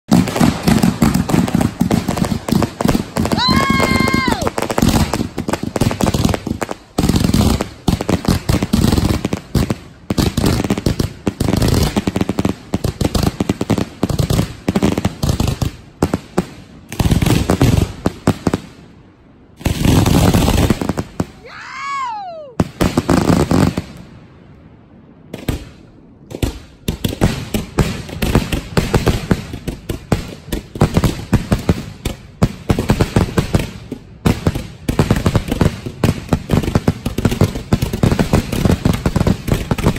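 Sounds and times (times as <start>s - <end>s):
whistling firework tone: 3.3s - 4.6s.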